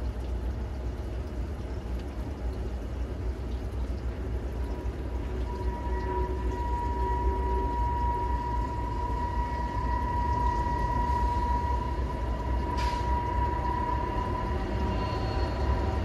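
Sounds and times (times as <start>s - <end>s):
diesel train engine rumble: 4.6s - 16.0s
high whine: 5.4s - 16.0s
brief hiss: 12.8s - 13.1s.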